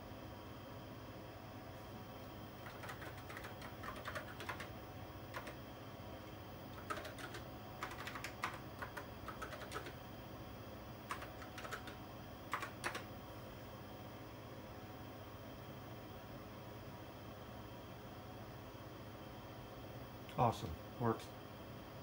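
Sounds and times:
keyboard typing clicks: 2.6s - 4.7s, 5.3s - 5.6s, 6.7s - 10.0s, 11.1s - 13.1s.

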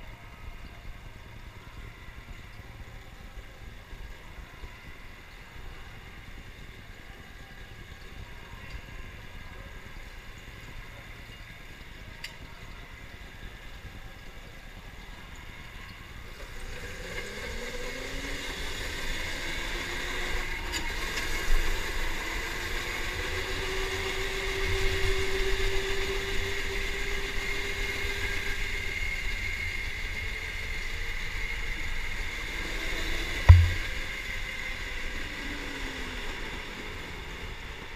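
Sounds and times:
knock: 33.5s - 34.0s
low rumble: 33.5s - 34.1s.

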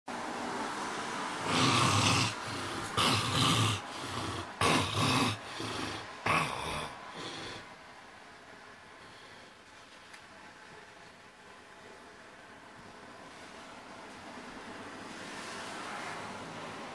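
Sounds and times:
man snoring heavily: 1.4s - 7.7s.

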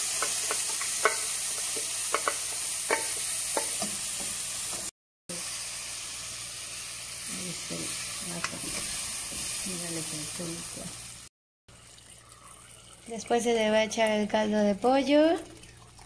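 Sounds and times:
noodles sizzling in hot oil: 0.0s - 11.3s
spoon clicking against pot: 0.2s - 1.2s, 1.8s - 3.7s.

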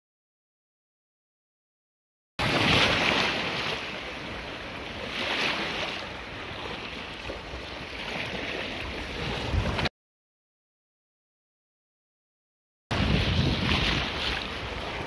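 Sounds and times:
waves washing and splashing: 2.4s - 9.9s, 12.9s - 15.0s
wind rumbling on microphone: 2.4s - 9.9s, 12.9s - 15.0s.

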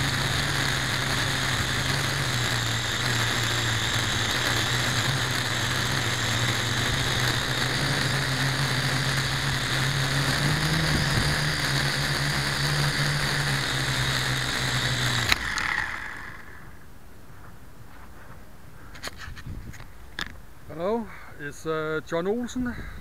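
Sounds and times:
drone motors buzzing: 0.0s - 16.9s.

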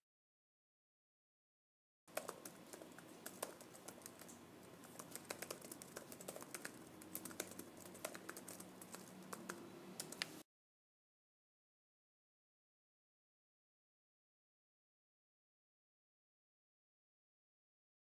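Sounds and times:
typing on laptop keyboard: 2.1s - 10.4s.

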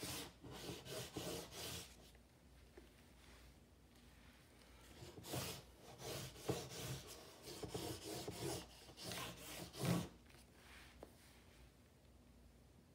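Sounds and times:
scratchy drawing strokes on paper: 0.0s - 2.1s, 5.0s - 11.0s.

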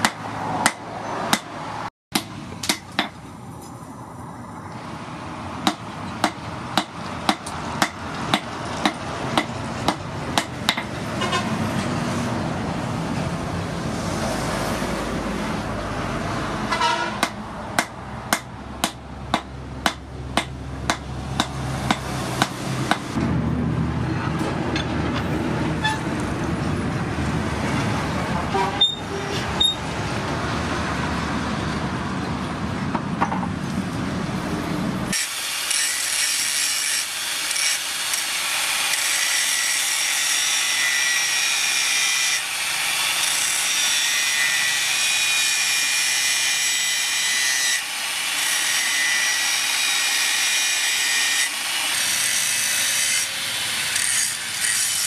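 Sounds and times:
hammer striking metal on anvil: 0.0s - 3.2s, 5.6s - 11.0s, 17.2s - 23.2s.

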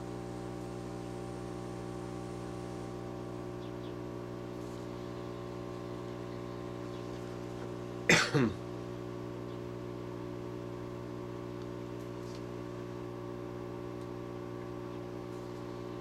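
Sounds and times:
hot air blower humming: 0.0s - 16.0s
person coughing: 8.1s - 8.6s.

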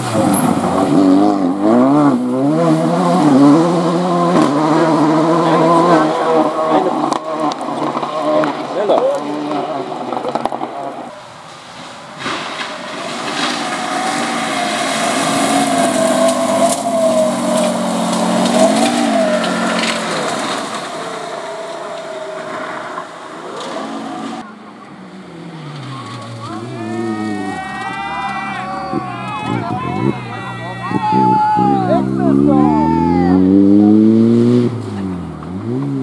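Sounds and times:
gravel crunching and spraying: 0.0s - 32.8s
rally car engine: 0.0s - 36.0s
second rally car engine: 0.0s - 36.0s.

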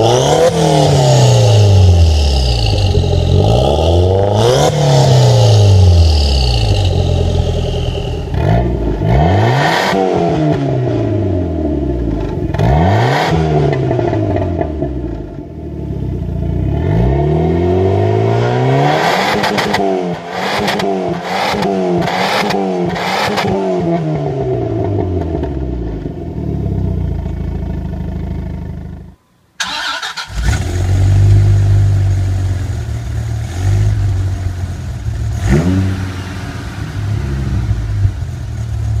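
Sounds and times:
car engine revving: 0.0s - 27.8s, 29.6s - 39.0s
deep engine idling: 1.4s - 9.2s.

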